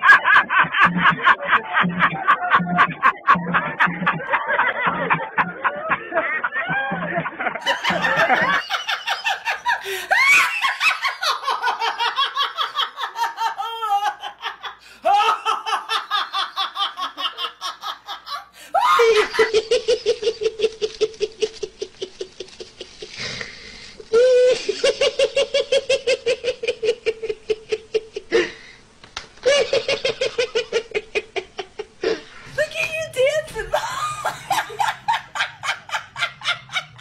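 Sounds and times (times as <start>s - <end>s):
man laughing rapidly: 0.0s - 21.6s
woman laughing: 0.0s - 23.0s, 32.5s - 37.0s.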